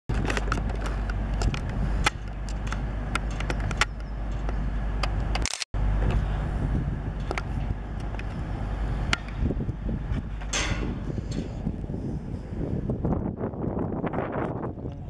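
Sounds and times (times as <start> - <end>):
sharp clicks and knocks: 0.1 - 5.7
diesel engines rumbling: 0.1 - 15.0.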